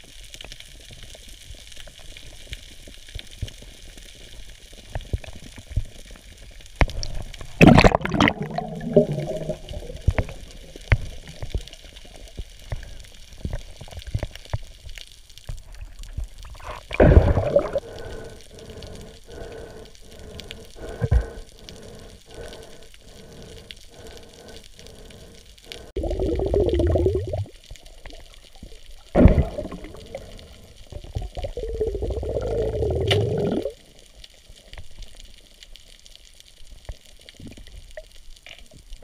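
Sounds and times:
underwater water noise: 0:00.0 - 0:39.0
rushing bubbling water: 0:06.9 - 0:14.2, 0:15.6 - 0:34.0.

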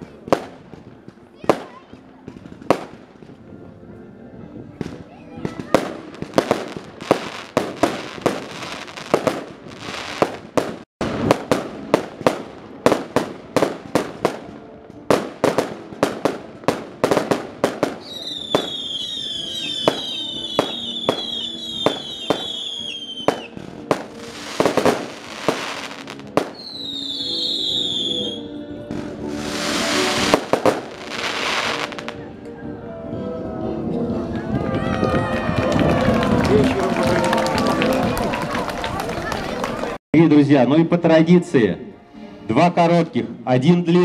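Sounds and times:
fireworks bangs and crackling: 0:00.0 - 0:04.0, 0:04.6 - 0:32.2
falling firework whistles: 0:18.0 - 0:23.6, 0:24.3 - 0:28.5, 0:29.4 - 0:32.2.

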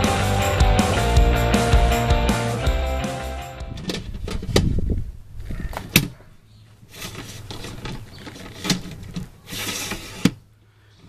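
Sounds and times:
camera handling rumble and rubbing: 0:06.9 - 0:10.3.

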